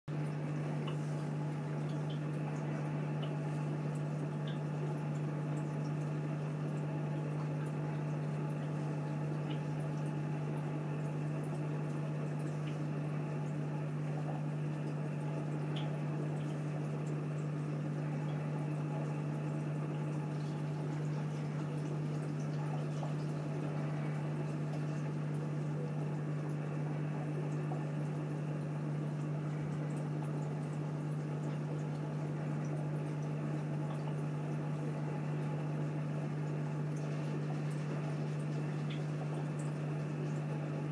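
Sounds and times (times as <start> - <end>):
aquarium filter hum: 0.1 - 40.9
faint ticks of drips: 0.1 - 40.9
water trickling and bubbling: 0.1 - 40.9.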